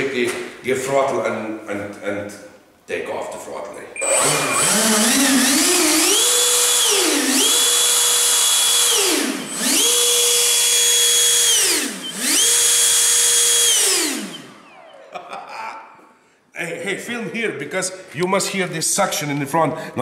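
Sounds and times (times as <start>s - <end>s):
electric ducted fan whining: 4.0s - 15.7s.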